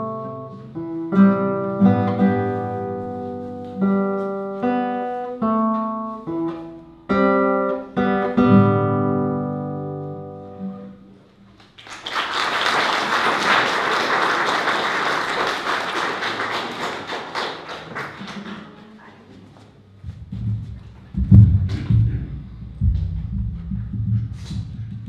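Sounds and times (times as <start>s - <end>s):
classical guitars playing: 0.0s - 11.8s
audience applause: 11.6s - 18.8s.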